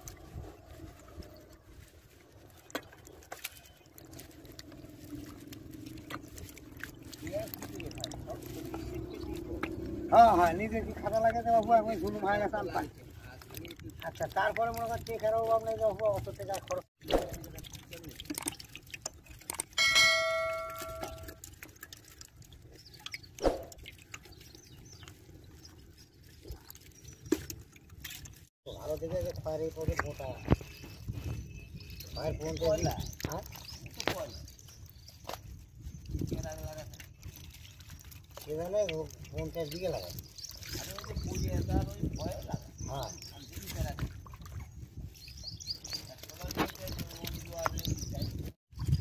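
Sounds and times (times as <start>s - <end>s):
hands squelching in wet mud: 0.0s - 49.0s
metal bowl ringing: 19.8s - 21.4s.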